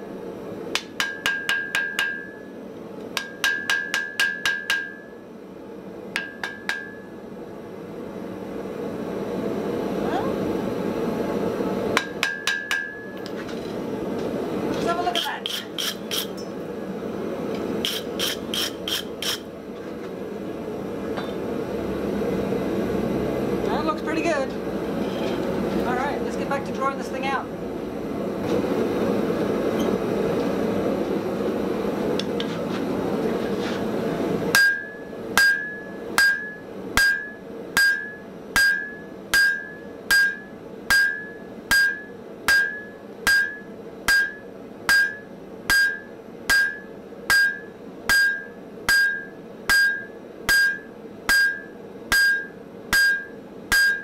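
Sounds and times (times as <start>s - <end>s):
hammer striking steel on anvil: 0.7s - 2.5s, 3.2s - 5.2s, 6.2s - 7.1s, 12.0s - 13.2s, 15.2s - 16.5s, 34.6s - 54.0s.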